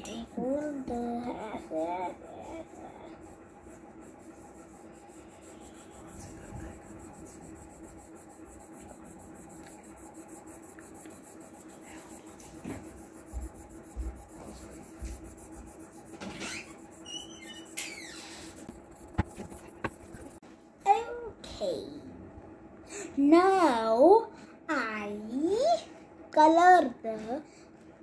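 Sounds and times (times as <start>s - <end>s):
pencil scribbling on paper: 0.0s - 20.4s.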